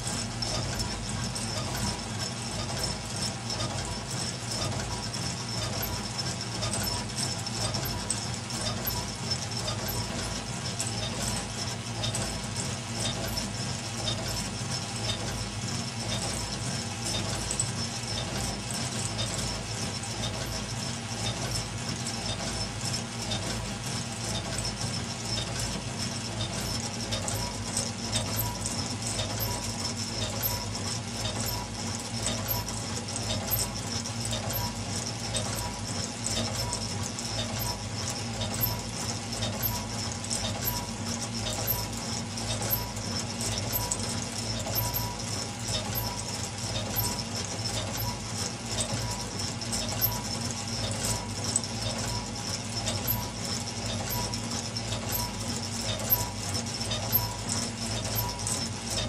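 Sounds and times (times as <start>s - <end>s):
model steam engine clattering: 25.4s - 59.0s.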